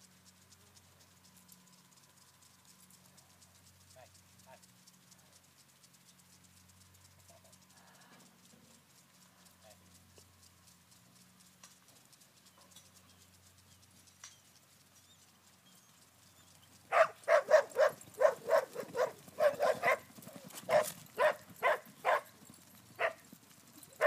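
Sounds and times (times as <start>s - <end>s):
dog barking: 16.9s - 20.1s, 20.7s - 22.3s, 23.0s - 23.2s.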